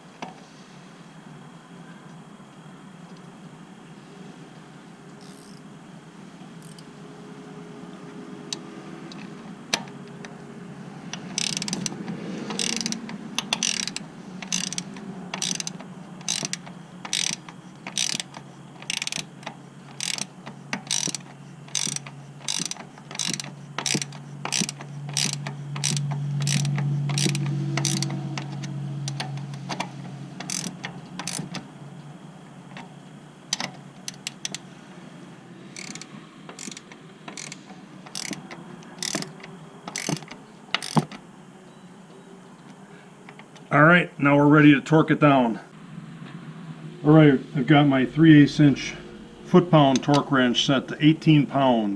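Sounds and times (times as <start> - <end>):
ratcheting wrench clicking: 5.2 - 5.6, 6.6 - 6.9, 11.1 - 31.6, 33.5 - 34.6, 35.7 - 41.2
low hum: 45.5 - 51.9.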